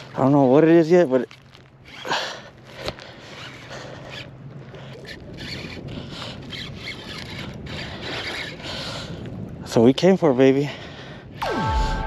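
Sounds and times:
fishing reel ticking: 0:04.9 - 0:08.6.

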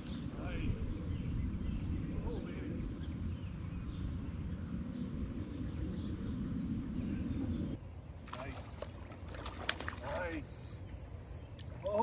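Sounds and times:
steady low rumble: 0:00.0 - 0:08.2.

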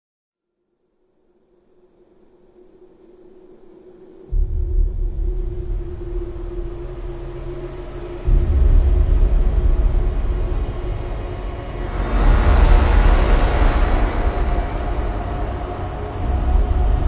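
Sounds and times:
deep rumbling bass drone: 0:04.3 - 0:17.0.

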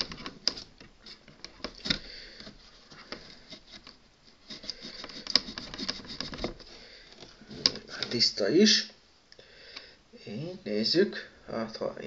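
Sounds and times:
small handling clicks and rustles: 0:00.0 - 0:08.3.

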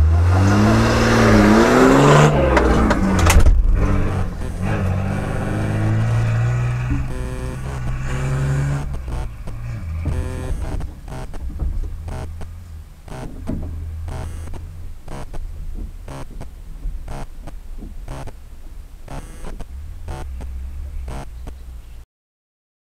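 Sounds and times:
car engine idling: 0:00.6 - 0:22.0
short repeating pulse: 0:04.2 - 0:11.4, 0:12.1 - 0:12.5, 0:13.1 - 0:13.3, 0:14.1 - 0:15.4, 0:19.1 - 0:20.5.

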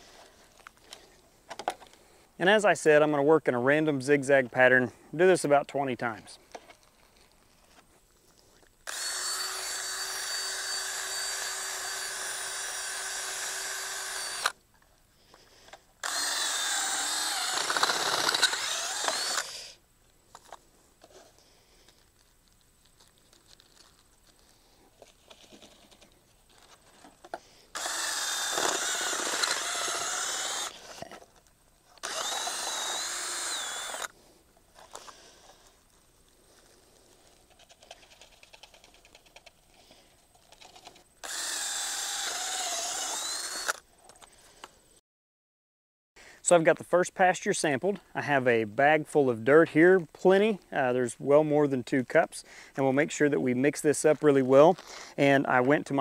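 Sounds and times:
cordless drill whining: 0:08.8 - 0:14.6, 0:16.0 - 0:19.8, 0:27.6 - 0:31.2, 0:32.0 - 0:34.2, 0:41.2 - 0:43.8.

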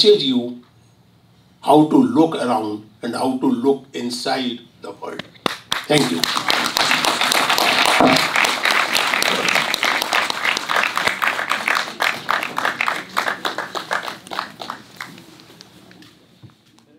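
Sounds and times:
audience applause: 0:05.5 - 0:15.6.

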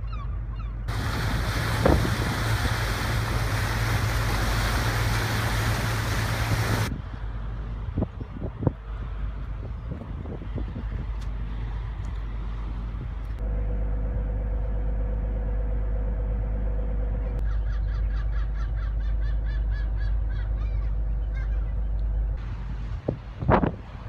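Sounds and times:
ferry engines rumbling: 0:00.0 - 0:24.0
wind buffeting microphone: 0:00.9 - 0:13.4, 0:22.4 - 0:24.0
gull calling: 0:17.4 - 0:21.9.

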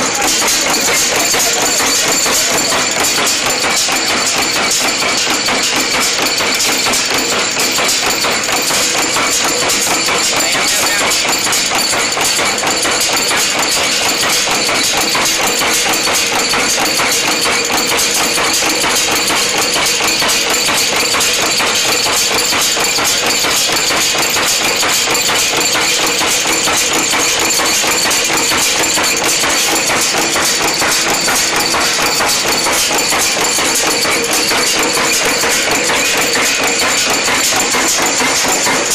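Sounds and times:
nail machine metallic clatter: 0:00.0 - 0:38.9.

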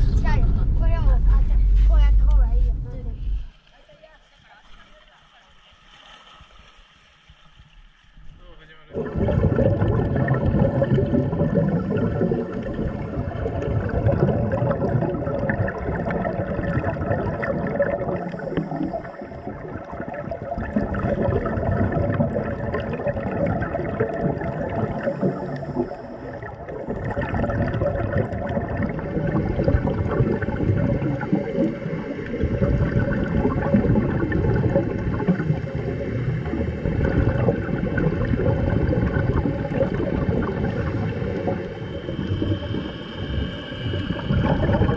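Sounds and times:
steady low hum: 0:00.0 - 0:03.7
underwater bubbles gurgling: 0:08.9 - 0:44.9.

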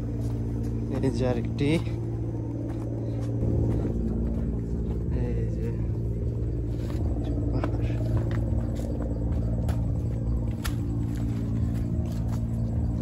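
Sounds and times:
low mechanical hum: 0:00.0 - 0:13.0.

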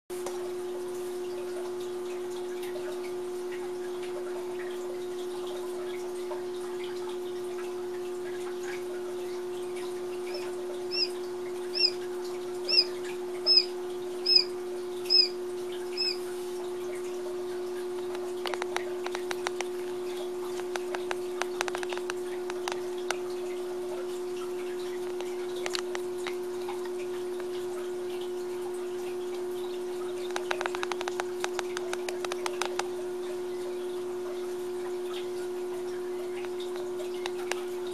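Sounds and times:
steady low hum: 0:07.8 - 0:37.9
chicks pecking in wood shavings: 0:10.3 - 0:11.1, 0:11.7 - 0:12.0, 0:12.7 - 0:12.9, 0:13.5 - 0:14.5, 0:15.1 - 0:15.4, 0:16.0 - 0:16.4, 0:18.0 - 0:22.8, 0:30.3 - 0:32.9
chick peeping: 0:10.3 - 0:12.0, 0:12.7 - 0:14.5, 0:15.1 - 0:15.4, 0:16.0 - 0:16.3.

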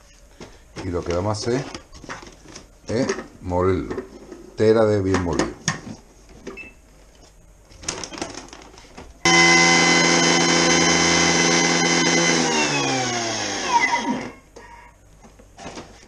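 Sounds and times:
food processor motor whining: 0:09.3 - 0:14.4.

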